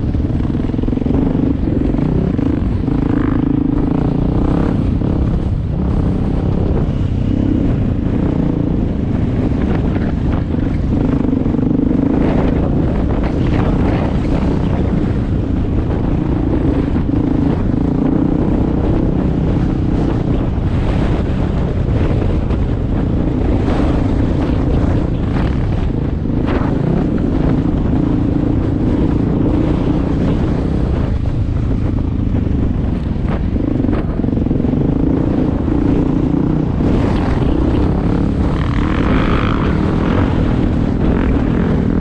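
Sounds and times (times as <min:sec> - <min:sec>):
dirt bike engine revving: 0:00.0 - 0:22.6, 0:32.6 - 0:42.0.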